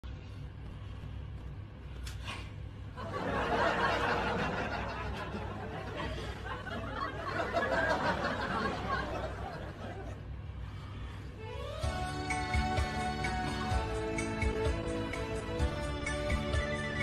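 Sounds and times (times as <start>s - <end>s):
low steady hum: 0.0s - 16.0s
snickering and laughter: 3.0s - 10.2s.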